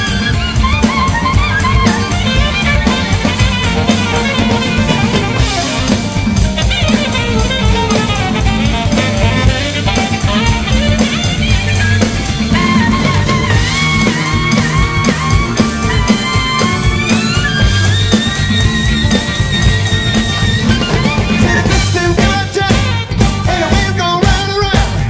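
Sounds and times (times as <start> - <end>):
alto saxophone solo: 0.0 - 24.1
live rock band playing: 0.0 - 25.0.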